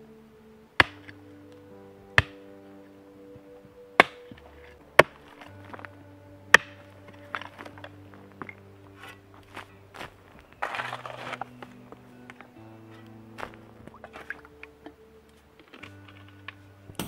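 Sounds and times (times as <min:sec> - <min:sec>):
soft background music: 0:00.0 - 0:17.0
mattock chopping into stony soil: 0:00.8 - 0:01.2, 0:02.2 - 0:02.4, 0:04.0 - 0:04.4, 0:10.6 - 0:11.5
soil and stones scraping: 0:04.0 - 0:16.7.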